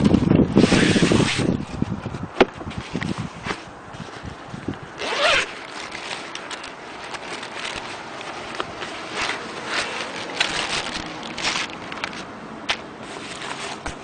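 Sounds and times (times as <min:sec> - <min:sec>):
zipper pulled open: 0:00.6 - 0:01.6, 0:05.0 - 0:07.9
plastic wrapping rustling: 0:02.7 - 0:14.0.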